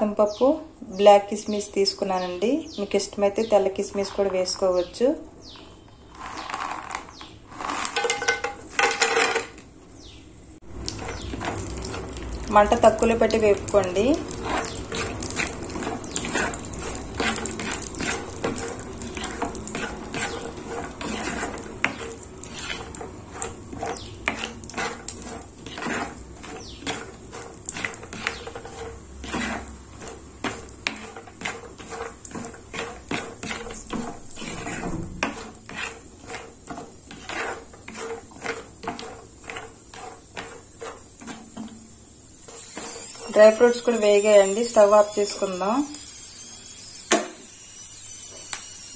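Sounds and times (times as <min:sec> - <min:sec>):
spatula scraping a pan: 0:03.4 - 0:04.9, 0:05.7 - 0:09.6, 0:10.8 - 0:47.5
light sizzle: 0:10.6 - 0:48.9.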